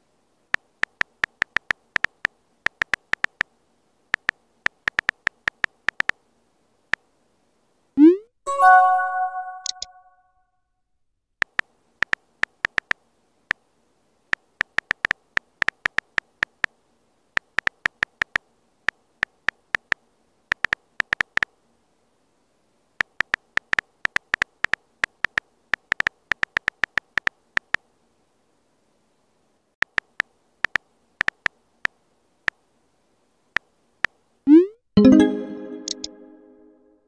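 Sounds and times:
phone keyboard key clicks: 4.2s - 6.2s, 19.2s - 21.5s, 29.8s - 31.6s.

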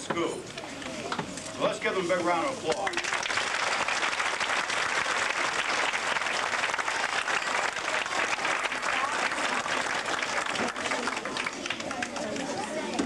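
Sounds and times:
audience applauding: 2.8s - 13.0s.

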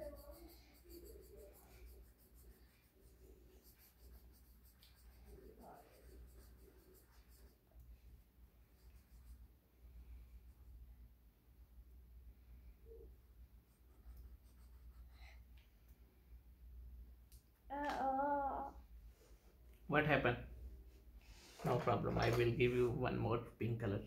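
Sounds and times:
pencil scratching on paper: 0.0s - 10.7s, 13.6s - 15.4s.

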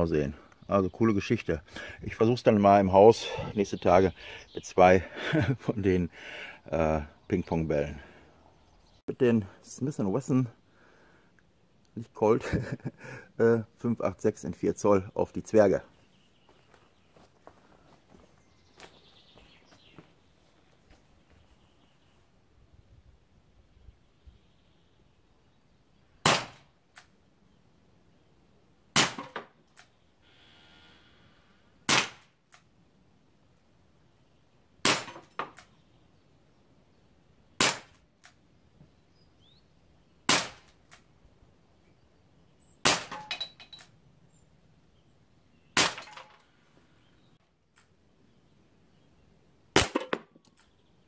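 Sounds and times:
air revolver shots: 26.2s - 26.7s, 29.0s - 29.4s, 31.9s - 32.3s, 34.8s - 35.3s, 37.6s - 38.0s, 40.3s - 40.7s, 42.8s - 43.3s, 45.8s - 46.2s, 49.8s - 50.2s.

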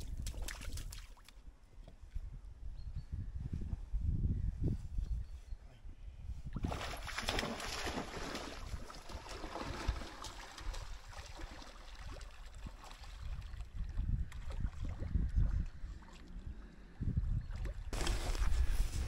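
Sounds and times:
wind rumble on microphone: 0.0s - 1.0s, 1.8s - 19.0s
dog splashing through water: 6.6s - 13.4s.

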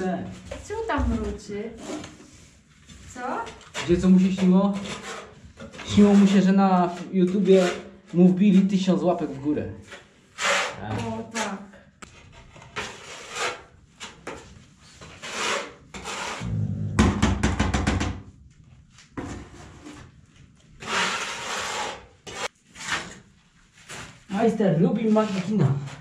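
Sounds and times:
tiles scraping in adhesive: 0.5s - 8.7s, 9.8s - 16.4s, 20.8s - 24.2s.

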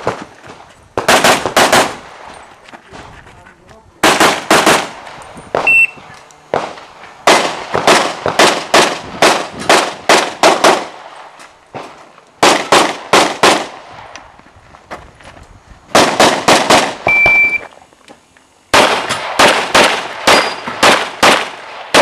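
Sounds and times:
pistol shots: 1.0s - 2.2s, 4.0s - 11.1s, 11.8s - 13.8s, 15.9s - 17.1s, 18.7s - 22.0s.

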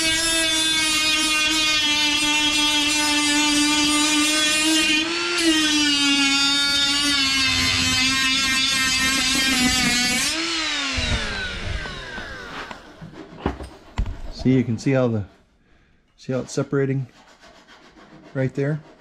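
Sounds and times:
die grinder grinding steel: 0.0s - 14.7s.

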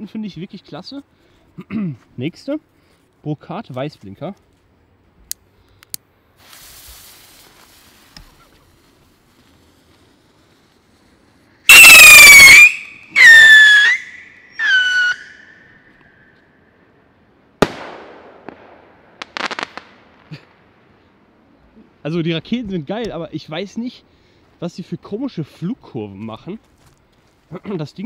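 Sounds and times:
firework rocket whistling: 6.4s - 16.0s
firework bang: 17.6s - 20.6s.

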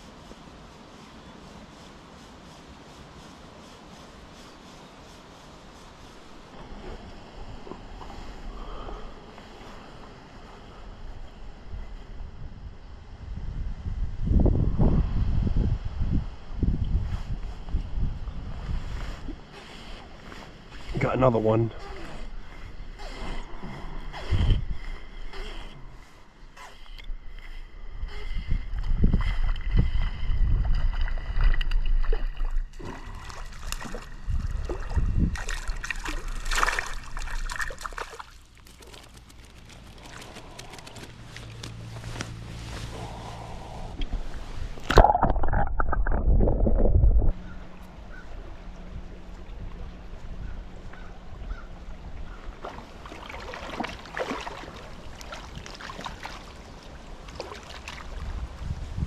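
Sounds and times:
wind rumble on microphone: 5.5s - 38.0s, 39.1s - 54.1s, 54.7s - 59.0s
river water splashing: 29.4s - 48.8s, 51.0s - 58.8s
fish splashing at water surface: 31.7s - 41.8s
heavy low rumble: 39.7s - 52.4s.

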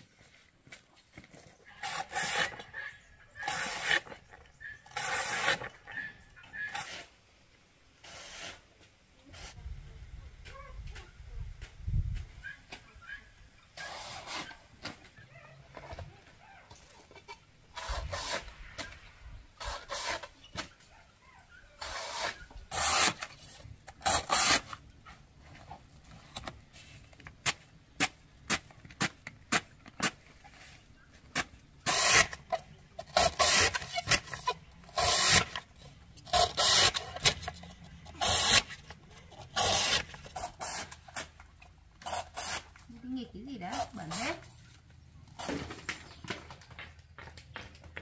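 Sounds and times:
knife scraping bamboo shoot: 1.8s - 2.8s, 3.4s - 5.9s, 19.6s - 20.7s, 21.8s - 24.8s, 31.3s - 41.4s, 42.0s - 42.8s.

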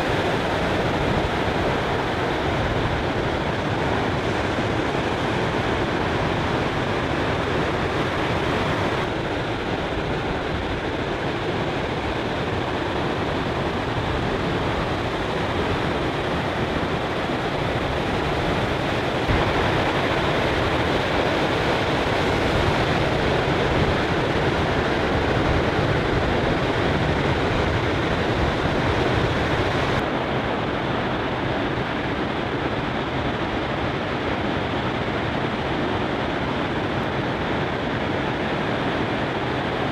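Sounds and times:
ocean waves crashing: 12.7s - 30.1s.

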